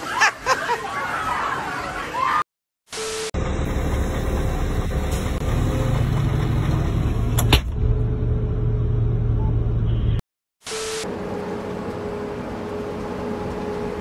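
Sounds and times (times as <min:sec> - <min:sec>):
heavy diesel engines under load: 0:03.4 - 0:10.2.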